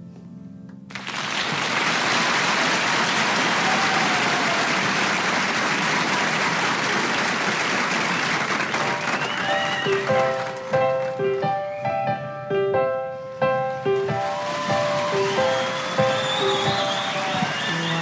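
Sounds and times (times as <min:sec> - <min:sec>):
audience applause: 0:00.9 - 0:11.4, 0:13.7 - 0:18.0
piano notes: 0:08.8 - 0:18.0.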